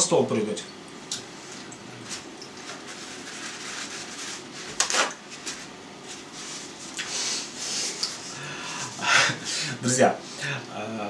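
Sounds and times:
paper towel rustling: 1.4s - 7.0s.

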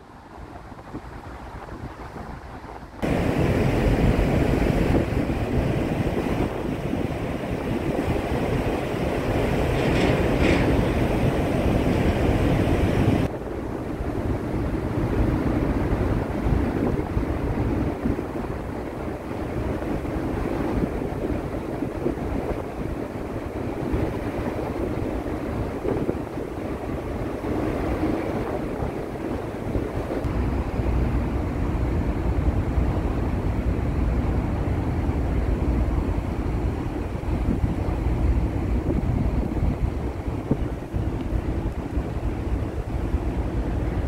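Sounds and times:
water rushing: 0.0s - 13.3s
wind on microphone: 0.0s - 44.0s.

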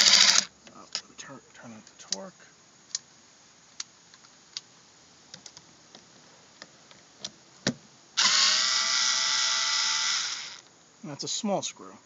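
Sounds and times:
electric screwdriver motor whine: 0.0s - 0.5s, 8.2s - 10.7s.

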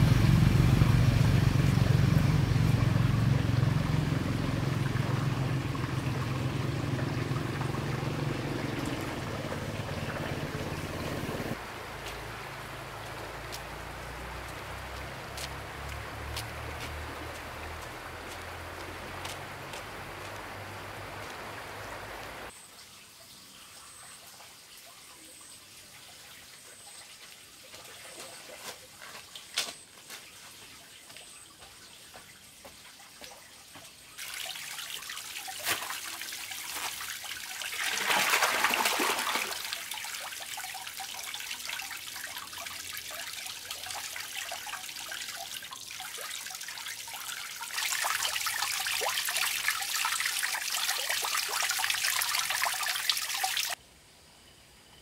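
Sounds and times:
fountain water trickling: 0.0s - 29.6s, 30.2s - 53.8s
rush of water into tank: 34.2s - 53.8s.

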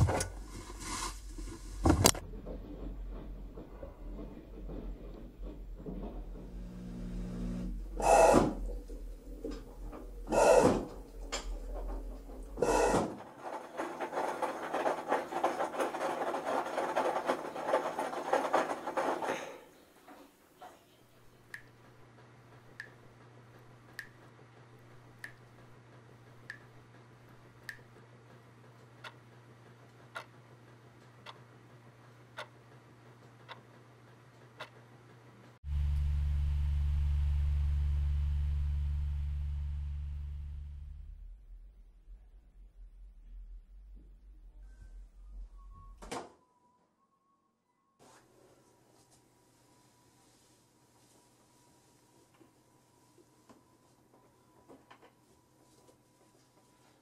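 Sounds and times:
machine low hum: 0.0s - 13.1s, 35.6s - 46.0s.

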